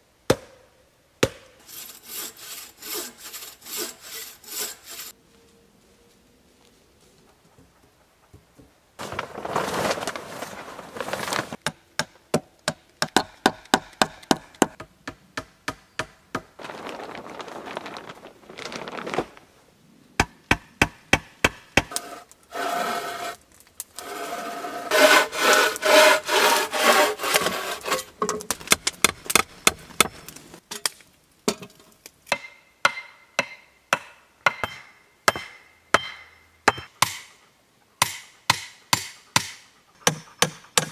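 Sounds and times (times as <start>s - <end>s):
scraping and rasping wood: 1.6s - 5.1s, 21.9s - 23.4s, 24.0s - 28.2s.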